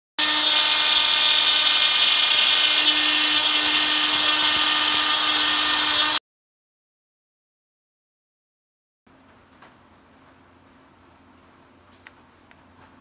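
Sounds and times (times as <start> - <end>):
router spindle whining while cutting: 0.2 - 6.2.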